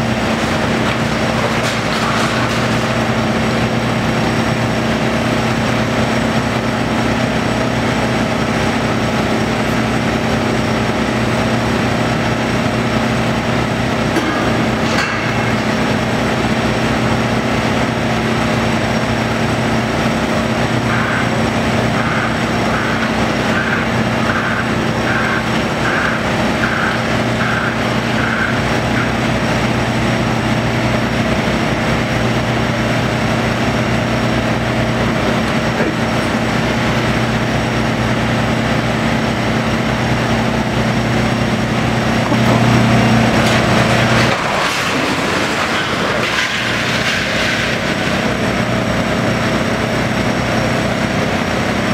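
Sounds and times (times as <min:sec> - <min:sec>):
excavator diesel engine: 0:00.0 - 0:51.9
metal clank: 0:14.2 - 0:15.8.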